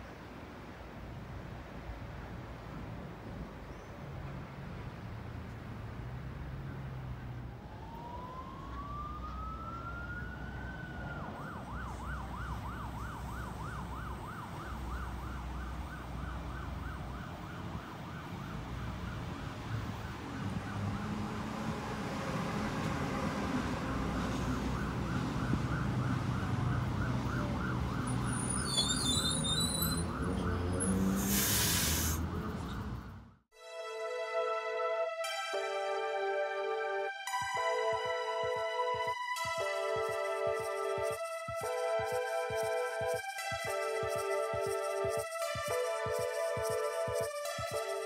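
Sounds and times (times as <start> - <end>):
emergency siren wailing and yelping: 6.6 - 31.3, 34.8 - 48.0
electric train rumbling: 20.2 - 33.1.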